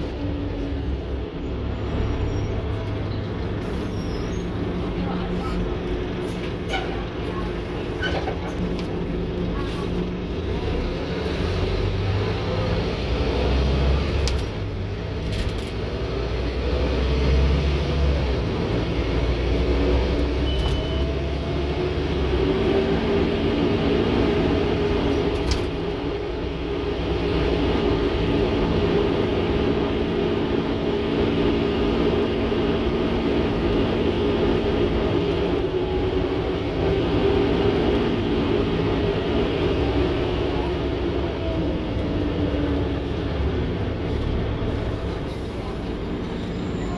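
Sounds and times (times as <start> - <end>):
bus diesel engine droning: 0.0 - 46.9.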